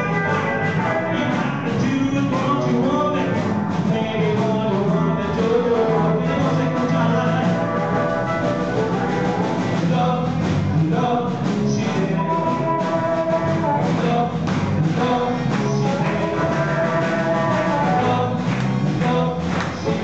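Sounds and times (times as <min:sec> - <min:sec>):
harmonica wailing: 0:00.0 - 0:01.6, 0:06.0 - 0:09.8
man singing: 0:00.0 - 0:08.3, 0:09.6 - 0:20.0
blues band playing: 0:00.0 - 0:20.0.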